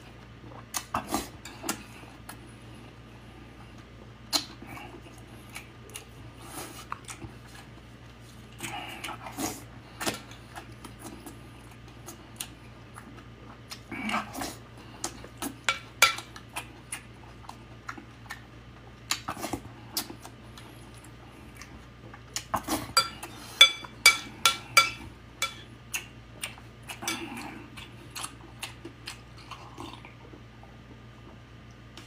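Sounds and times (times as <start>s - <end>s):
chewing and eating sounds: 0.0s - 32.0s
metal spoon clinking on plate: 23.0s - 25.6s.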